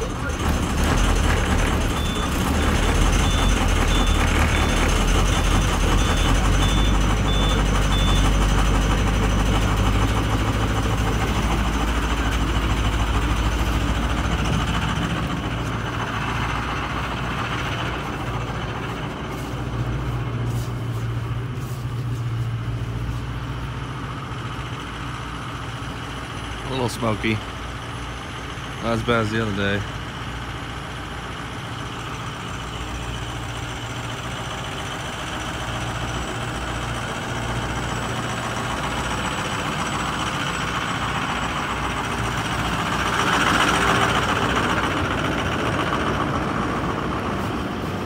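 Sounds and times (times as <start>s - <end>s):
diesel engine idling: 0.0s - 48.0s
high-pitched beeping: 1.9s - 8.4s.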